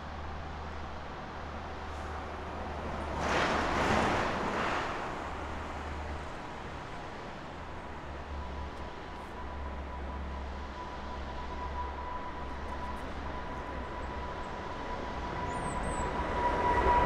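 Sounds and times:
distant jet engines roaring: 2.3s - 17.0s.

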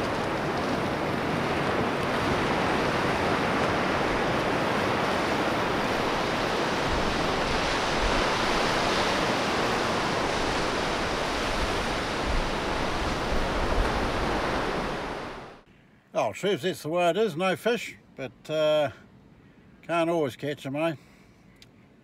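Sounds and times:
waves breaking on a beach: 0.0s - 15.7s.

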